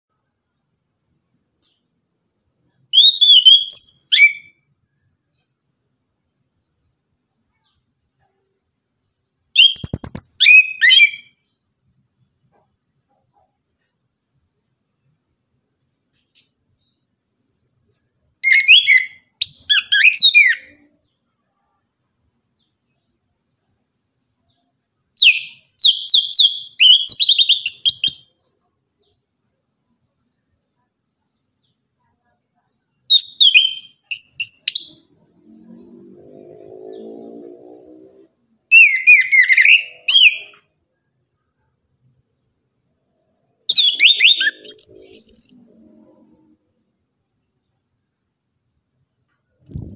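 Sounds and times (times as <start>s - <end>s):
thrush whistled song: 2.9s - 4.6s, 9.6s - 11.5s, 18.4s - 20.9s, 25.2s - 28.4s, 33.1s - 37.3s, 38.7s - 40.7s, 43.7s - 46.3s, 49.6s - 49.9s.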